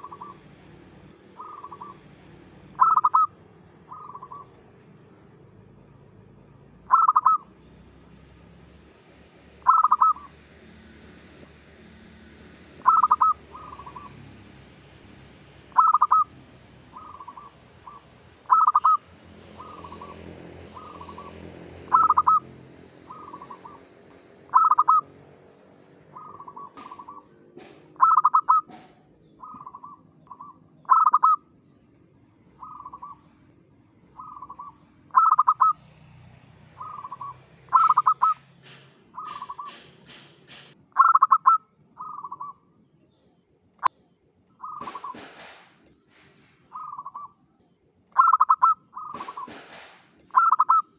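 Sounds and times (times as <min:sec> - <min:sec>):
dove cooing: 0:00.0 - 0:00.4, 0:01.3 - 0:02.1, 0:02.7 - 0:04.6, 0:06.9 - 0:07.5, 0:09.6 - 0:10.3, 0:12.8 - 0:14.2, 0:15.7 - 0:16.3, 0:16.9 - 0:25.1, 0:26.0 - 0:31.4, 0:32.6 - 0:33.4, 0:34.1 - 0:35.9, 0:36.8 - 0:38.4, 0:39.2 - 0:39.9, 0:41.0 - 0:42.6, 0:44.6 - 0:45.4, 0:46.7 - 0:47.3, 0:48.2 - 0:49.7, 0:50.3 - 0:50.9.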